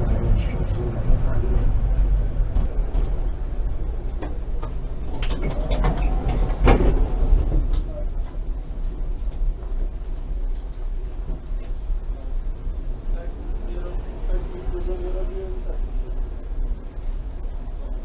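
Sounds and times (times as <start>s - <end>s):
tram rumbling on track: 0.0s - 18.0s
sharp clicks and knocks: 2.5s - 11.8s.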